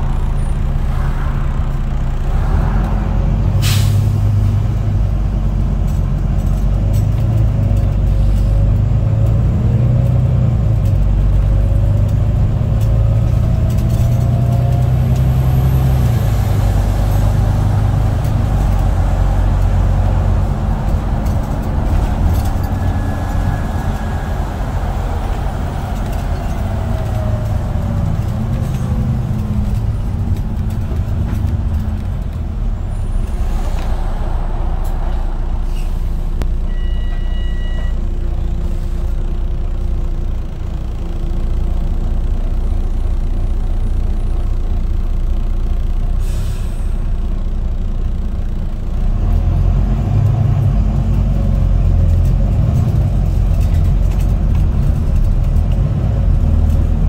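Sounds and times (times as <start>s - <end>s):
bus diesel engine: 0.0s - 57.0s
air brake hisses: 3.6s - 4.1s, 46.2s - 47.0s.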